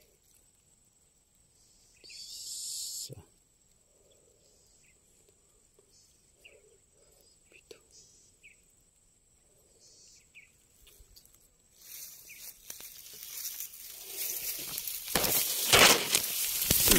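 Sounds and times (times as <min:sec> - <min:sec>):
high insect trill: 0:00.0 - 0:16.9
dry grass rustling against phone: 0:10.4 - 0:16.9.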